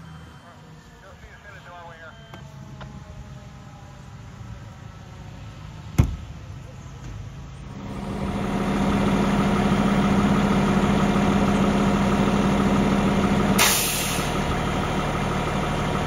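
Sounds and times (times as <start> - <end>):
diesel engine idling: 0.0 - 16.0
short hiss burst: 13.6 - 14.3.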